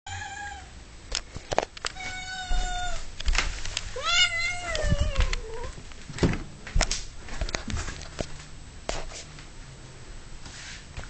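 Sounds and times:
cat meowing: 1.9 - 3.1, 4.0 - 5.8.

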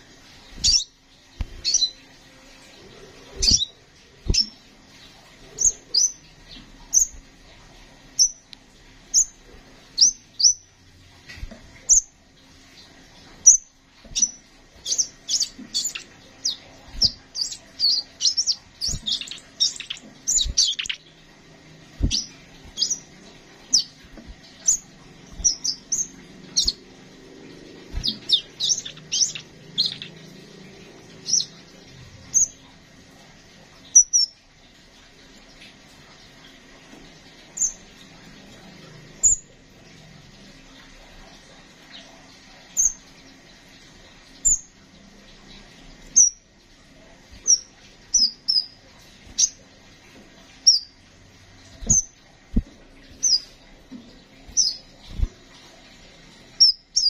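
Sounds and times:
sunbird chirping: 0.6 - 1.0, 3.4 - 4.6, 12.8 - 21.3, 22.0 - 32.6, 47.4 - 49.6, 50.6 - 51.0, 53.1 - 53.6, 54.4 - 55.3.

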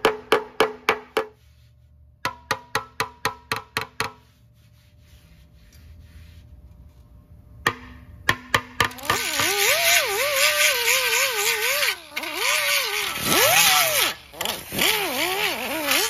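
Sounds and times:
hammer striking metal tank: 2.2 - 4.2, 7.6 - 9.2.

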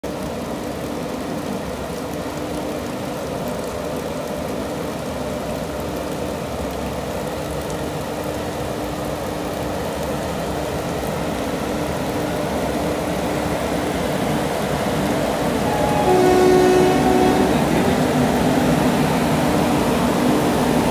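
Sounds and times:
heavy rain hissing: 6.9 - 20.9
electric locomotives humming: 11.6 - 20.9.

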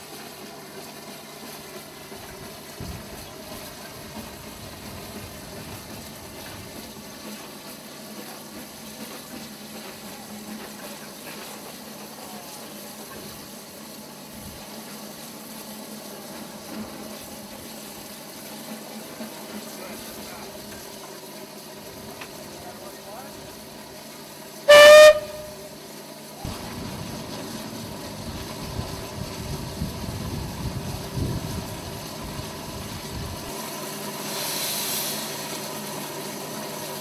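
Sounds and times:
steam hissing: 0.0 - 37.0.

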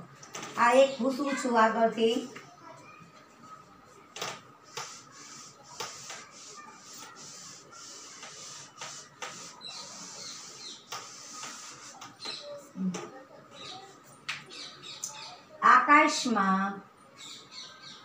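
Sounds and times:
duster scrubbing blackboard: 4.7 - 12.3.

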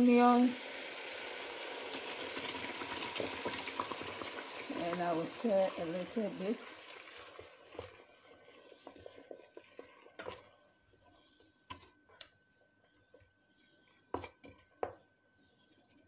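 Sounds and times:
wooden spatula scraping pot: 7.0 - 12.2, 13.7 - 14.8.

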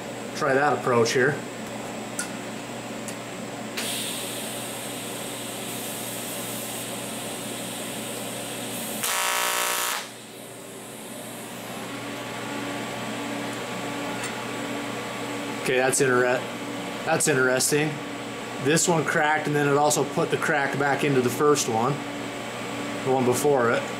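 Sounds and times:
cooling fan hum: 0.0 - 23.9
welding arc hissing and buzzing: 3.8 - 14.0.

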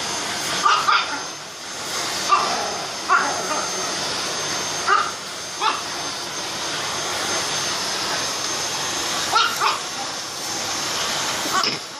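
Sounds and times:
vacuum cleaner whining: 0.0 - 11.9
small dog barking: 0.6 - 1.2, 2.2 - 3.6, 4.8 - 5.9, 9.3 - 9.9.

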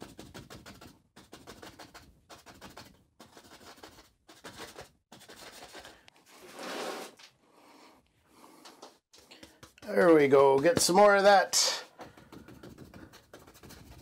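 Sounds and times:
bristle brush scrubbing canvas: 0.0 - 7.2, 9.2 - 11.2, 12.2 - 14.0.

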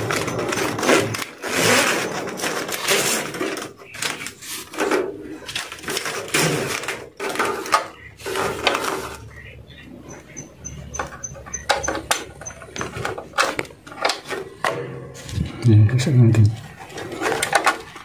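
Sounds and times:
tape tearing off roll: 0.0 - 9.3.

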